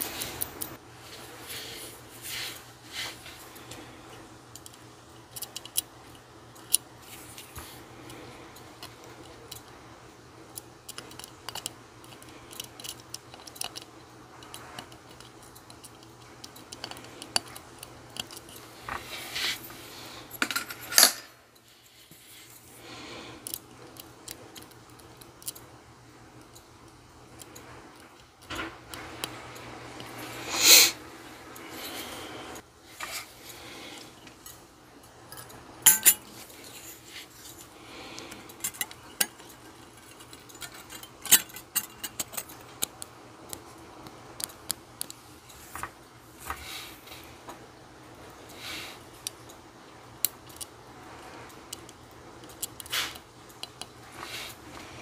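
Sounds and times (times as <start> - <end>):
clothes dryer humming: 0.0 - 5.0, 25.6 - 49.2
tweezers clicking and tapping: 10.5 - 18.7, 38.1 - 45.2, 51.7 - 54.0.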